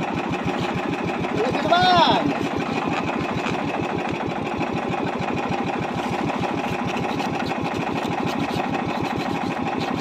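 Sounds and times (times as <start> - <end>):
boat engine pulsing: 0.0 - 10.0.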